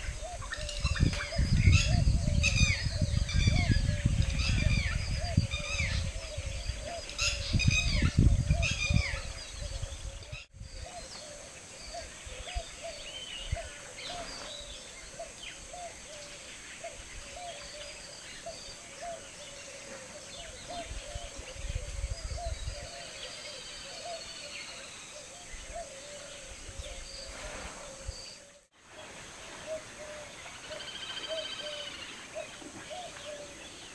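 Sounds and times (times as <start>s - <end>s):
low rumbling wind noise: 0.0s - 15.0s, 20.3s - 23.2s.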